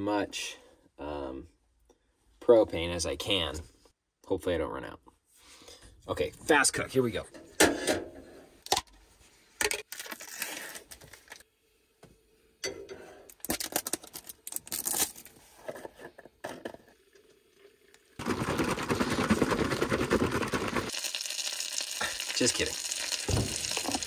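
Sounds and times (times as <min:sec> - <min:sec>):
packaging rustling and tearing: 0:09.9 - 0:11.4, 0:13.4 - 0:15.4, 0:18.2 - 0:21.2
food sizzling in frying: 0:20.2 - 0:24.0.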